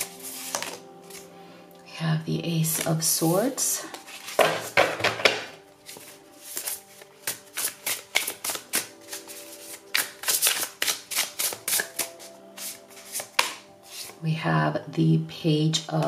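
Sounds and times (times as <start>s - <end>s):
cards snapping and slapping: 0.0s - 0.8s, 5.9s - 14.2s
soft background music: 0.0s - 16.0s.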